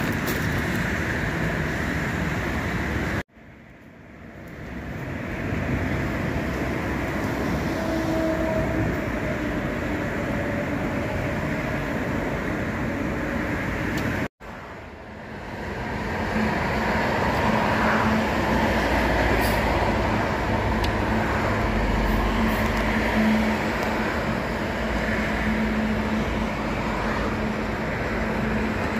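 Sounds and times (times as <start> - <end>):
traffic roar of tyres and engines: 0.0 - 28.9.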